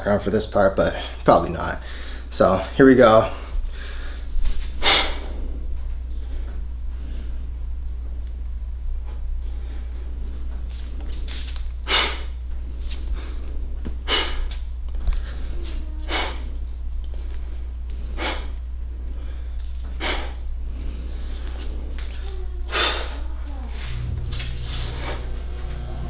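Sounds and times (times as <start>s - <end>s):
steady low hum: 0.0s - 26.0s
man exhaling forcefully: 4.8s - 5.4s, 11.8s - 12.4s, 14.0s - 14.5s, 16.1s - 16.5s, 18.2s - 18.6s, 20.0s - 20.4s.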